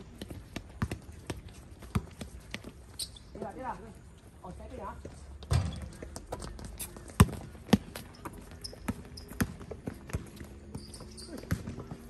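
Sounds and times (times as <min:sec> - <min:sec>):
players' footsteps: 0:00.0 - 0:12.0
basketball bouncing on hard court: 0:00.2 - 0:02.8, 0:05.5 - 0:12.0.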